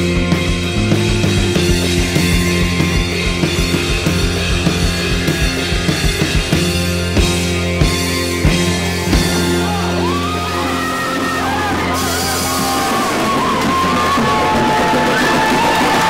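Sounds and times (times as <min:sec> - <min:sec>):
rock band playing: 0:00.0 - 0:16.0
person yelling: 0:09.2 - 0:15.6.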